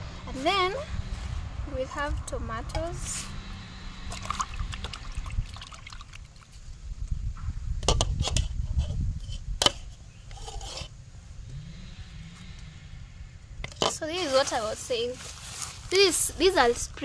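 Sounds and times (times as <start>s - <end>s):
steady low rumble: 0.0s - 17.0s
small splashes in water: 4.1s - 6.6s.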